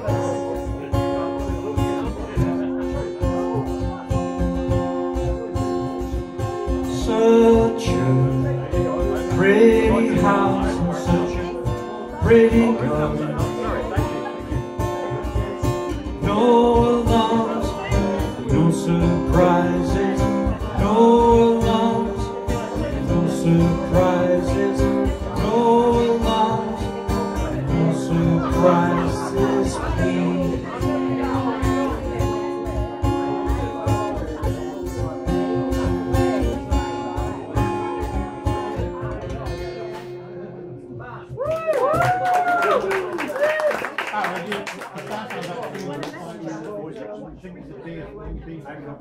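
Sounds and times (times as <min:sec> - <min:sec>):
strummed acoustic guitar: 0:00.0 - 0:41.4
man singing: 0:06.0 - 0:32.4.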